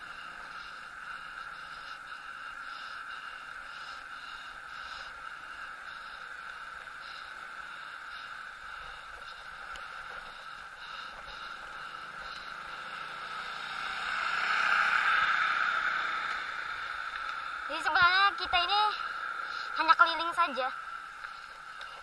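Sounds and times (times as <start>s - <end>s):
motor scooter passing: 0.0s - 22.0s
road and wind noise: 0.0s - 22.0s.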